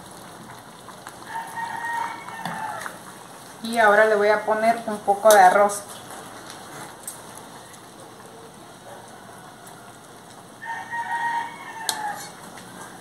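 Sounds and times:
rooster crowing: 0:01.3 - 0:03.0, 0:08.6 - 0:13.0.

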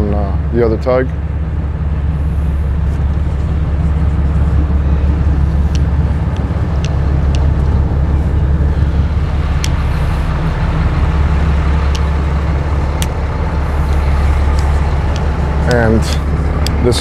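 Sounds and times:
boat engine low drone: 0:00.0 - 0:17.0
water and air noise: 0:00.0 - 0:17.0.

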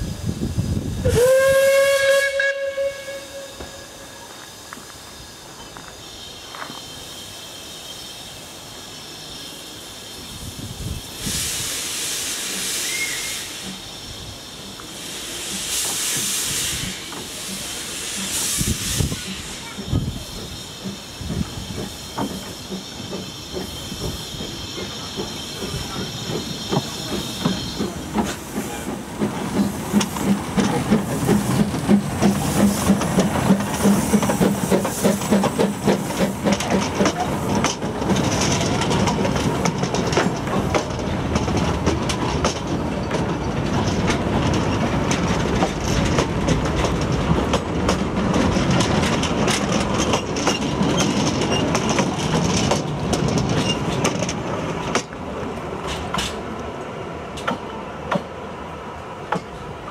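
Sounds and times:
steam hissing: 0:00.0 - 0:59.9
steam locomotive chuffing: 0:00.0 - 0:59.9
wheels clacking over rail joints: 0:19.0 - 0:58.4, 0:59.2 - 0:59.9.

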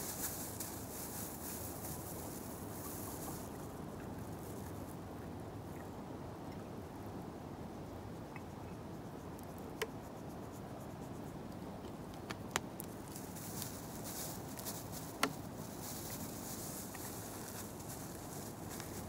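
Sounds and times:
soft rustling crackle: 0:00.0 - 0:05.9, 0:08.4 - 0:19.0
outdoor background noise: 0:00.0 - 0:19.0
light sharp clicks and taps: 0:11.5 - 0:13.8.

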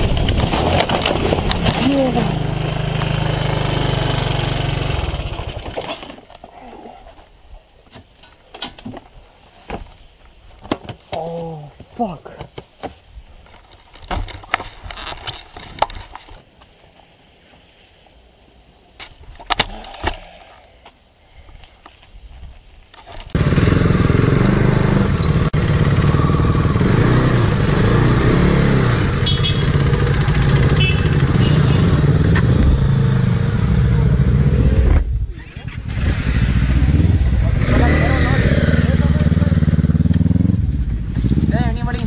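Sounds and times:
motorcycle engines idling: 0:29.1 - 0:32.4.

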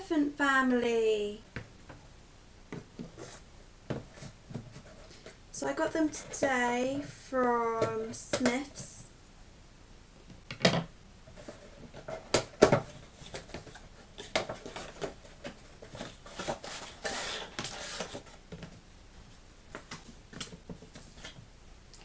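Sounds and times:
cardboard tray scraping rustle: 0:15.8 - 0:18.4.

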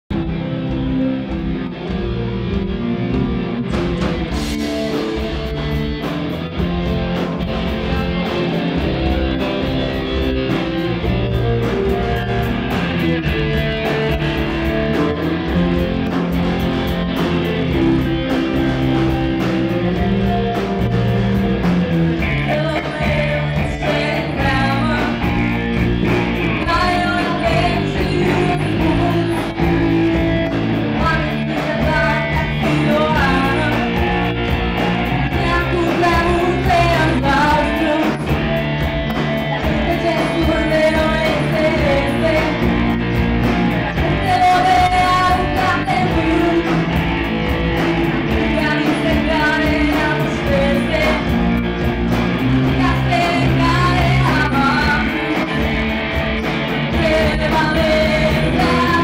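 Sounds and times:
drum kit: 0:00.0 - 0:59.0
electric guitars and bass: 0:00.0 - 0:59.0
woman singing lead vocal: 0:22.2 - 0:43.2, 0:43.8 - 0:47.1, 0:48.3 - 0:51.8, 0:52.4 - 0:59.0.

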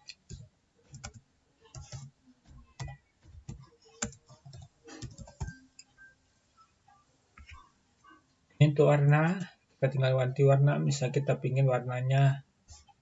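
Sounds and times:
computer keyboard typing: 0:00.1 - 0:05.9.

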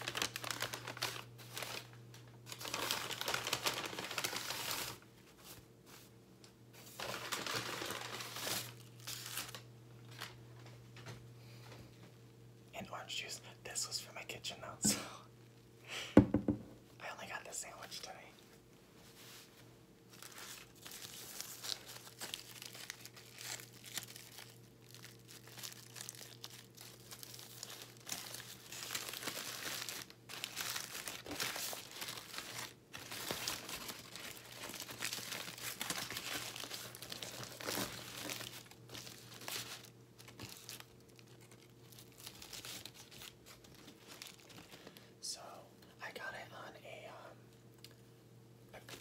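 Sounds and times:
foil wrapper crinkling: 0:00.0 - 0:05.6, 0:06.8 - 0:10.4, 0:20.0 - 0:45.1.

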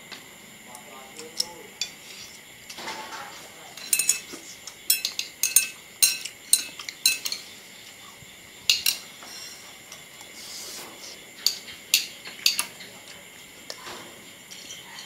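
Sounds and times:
cutlery clinking on china: 0:03.8 - 0:07.4, 0:08.7 - 0:09.0, 0:11.4 - 0:12.9.

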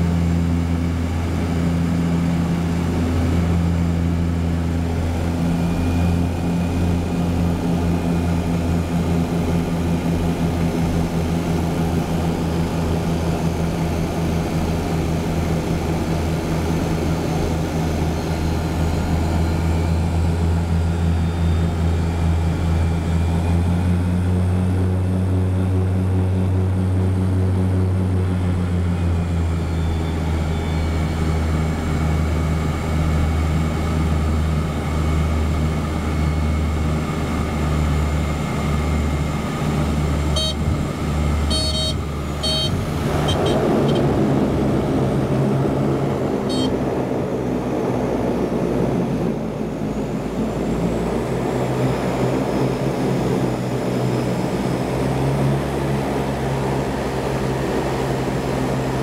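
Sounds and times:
seaplane propeller engine droning: 0:00.0 - 0:59.0.

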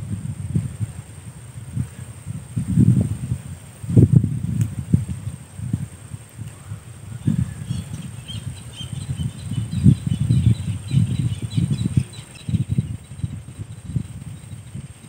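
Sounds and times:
faint bird chirps: 0:06.6 - 0:15.0.

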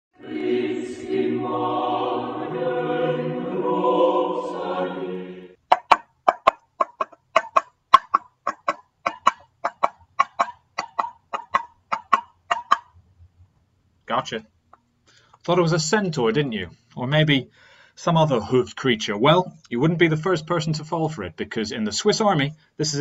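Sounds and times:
intro music: 0:00.1 - 0:05.6.

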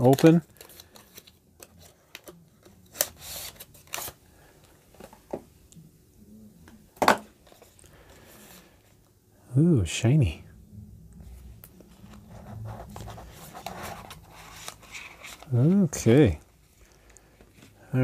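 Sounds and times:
cardboard packaging rustling: 0:00.0 - 0:04.3, 0:11.4 - 0:17.8.

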